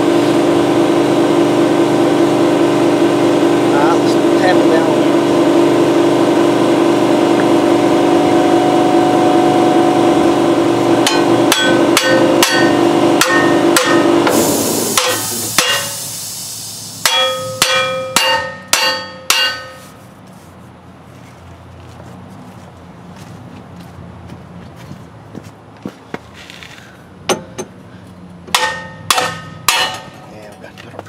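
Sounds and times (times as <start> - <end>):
motor humming: 0.0 - 16.2
hammer striking metal: 8.5 - 16.0, 17.0 - 20.0, 27.3 - 27.8, 28.5 - 30.3.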